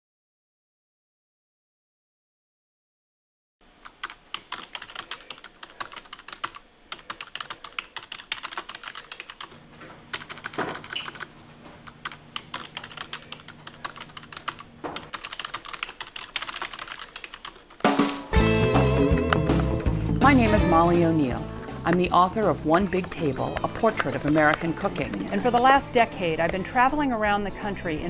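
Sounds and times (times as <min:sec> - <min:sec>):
keyboard typing clicks: 0:03.8 - 0:09.5, 0:10.1 - 0:11.3, 0:12.0 - 0:17.8, 0:18.9 - 0:20.0, 0:22.7 - 0:25.8.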